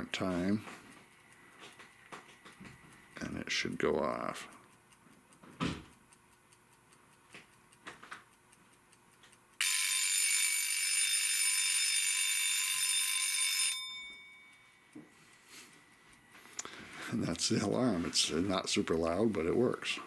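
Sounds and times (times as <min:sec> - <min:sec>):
faint clicks: 0:00.3 - 0:09.6, 0:14.5 - 0:20.0
alarm clock ringing buzz: 0:09.6 - 0:15.0.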